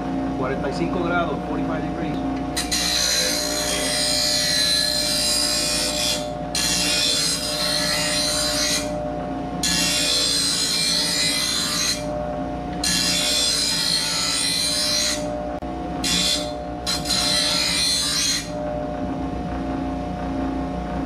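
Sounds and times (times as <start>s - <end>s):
grinder motor hum: 0.0s - 21.0s
grinder wheel grinding metal blade: 2.5s - 9.0s, 9.6s - 18.7s.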